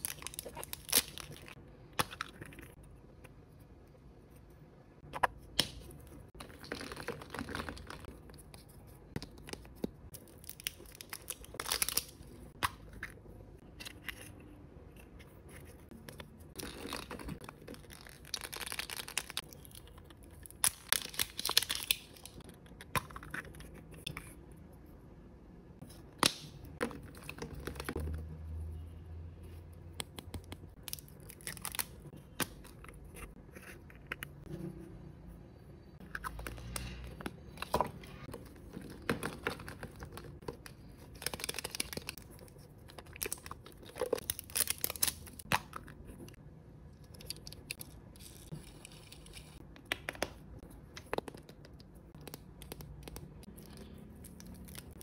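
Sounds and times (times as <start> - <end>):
crinkling and tearing wrappers: 0.0 - 1.6, 9.3 - 12.4, 16.6 - 22.5, 30.8 - 32.6, 38.2 - 46.3.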